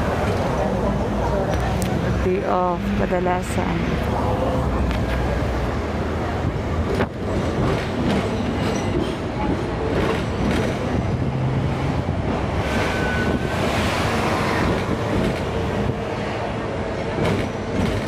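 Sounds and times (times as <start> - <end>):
tram rumble: 0.0 - 18.0.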